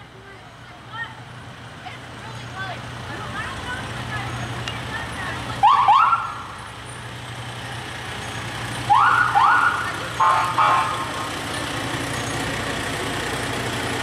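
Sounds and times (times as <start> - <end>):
truck engine idling: 0.0 - 14.0
fire truck siren whoops: 5.6 - 6.5, 8.9 - 11.1.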